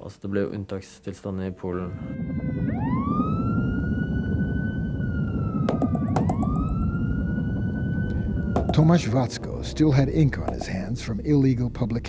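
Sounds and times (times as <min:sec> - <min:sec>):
police siren wailing: 0:01.6 - 0:10.8
street noise rumble: 0:01.9 - 0:12.0.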